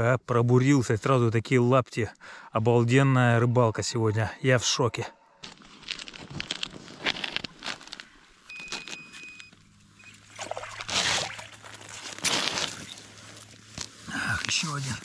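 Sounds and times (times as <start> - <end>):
fishing line hauled by hand: 5.4 - 13.9
fish splashing out of water: 10.0 - 12.9
slushy rustling and sloshing water: 10.0 - 15.0.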